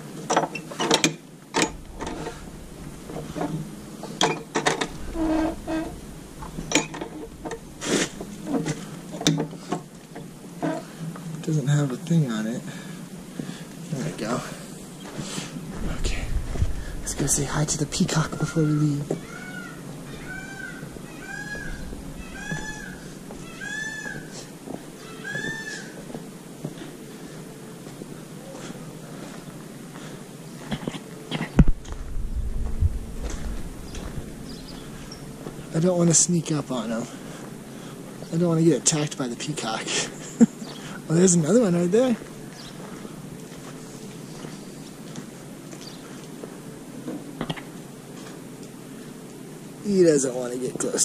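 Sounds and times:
peacock calling: 1.7s - 9.7s, 17.0s - 26.2s
metal hasp clicking and clanking: 4.2s - 7.7s.

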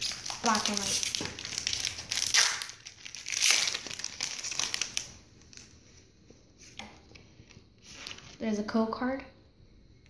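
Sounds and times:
foil wrapper tearing and crinkling: 0.0s - 5.7s.

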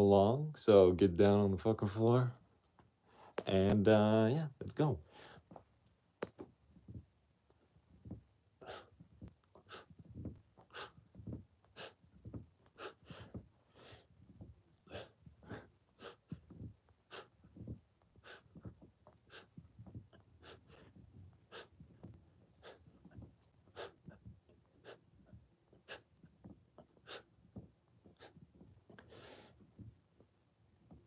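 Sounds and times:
man's sharp exhaled breaths: 8.6s - 9.0s, 10.7s - 11.0s, 12.8s - 14.1s, 14.9s - 16.3s, 18.2s - 18.5s.

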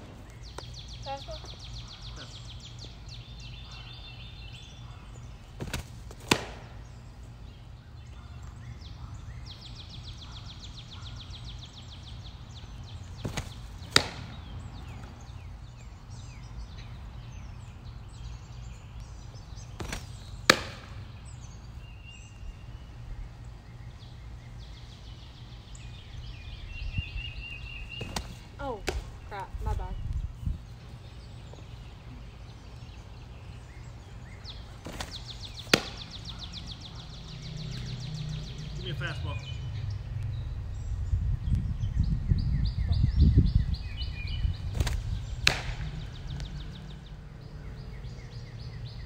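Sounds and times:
birds trilling and chirping: 0.0s - 49.0s
ball smacking into glove: 5.6s - 6.8s, 13.2s - 14.4s, 19.8s - 21.0s, 28.0s - 29.1s, 34.8s - 36.2s, 44.7s - 45.9s.

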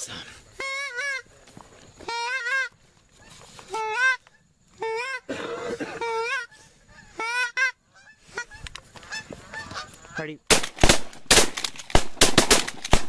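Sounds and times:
goose call honking: 0.6s - 1.3s, 2.0s - 10.3s
shotgun blasts: 10.5s - 13.0s.

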